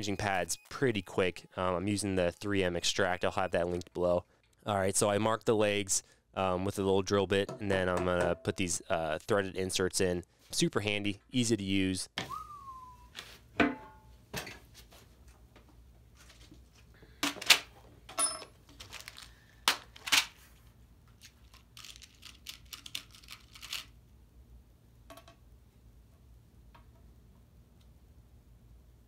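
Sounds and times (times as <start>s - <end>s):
plastic bag crinkling and tearing: 18.7s - 20.3s, 21.2s - 24.0s.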